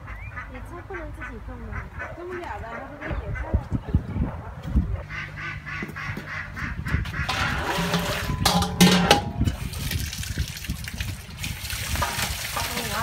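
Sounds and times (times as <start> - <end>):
water running into steel basin: 7.3 - 13.0
water splashing: 7.3 - 13.0.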